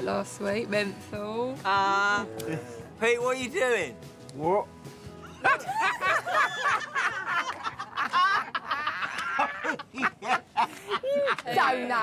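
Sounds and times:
people laughing and snickering: 2.3s - 2.9s, 5.2s - 12.0s.

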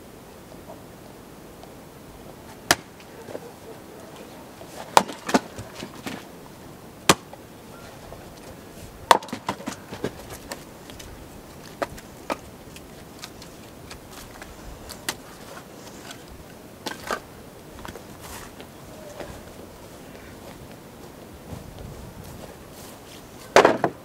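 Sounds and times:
axe splitting log: 2.6s - 3.0s, 4.8s - 6.2s, 7.0s - 7.4s, 9.1s - 10.6s, 23.5s - 24.0s
split wood pieces clattering: 4.7s - 6.2s, 9.1s - 18.0s, 23.5s - 24.0s
firewood knocks: 4.9s - 6.2s, 9.1s - 10.5s, 23.6s - 24.0s.

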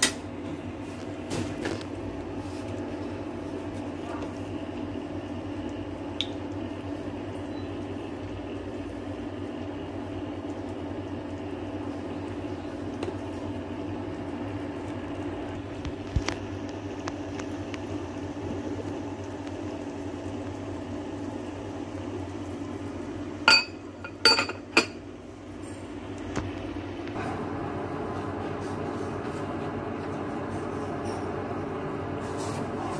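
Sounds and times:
glass pot lid clinking: 23.5s - 25.0s.

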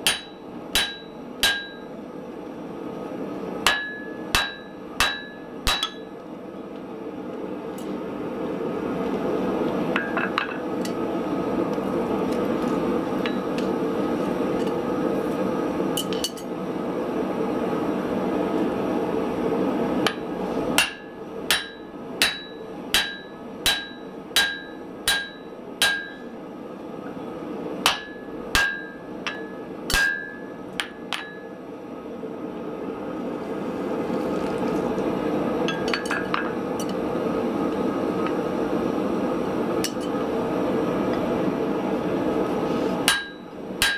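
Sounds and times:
hammer striking metal punch: 0.0s - 1.9s, 3.6s - 6.1s, 20.8s - 26.2s, 27.9s - 31.4s, 43.1s - 43.9s.

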